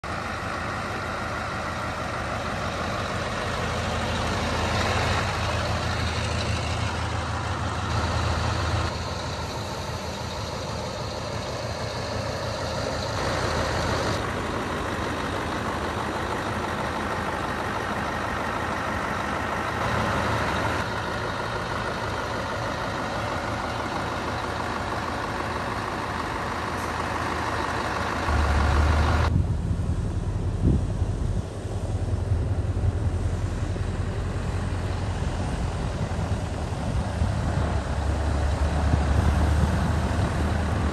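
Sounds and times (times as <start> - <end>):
diesel truck engine running: 0.0 - 40.9
deep rumble: 28.2 - 40.9.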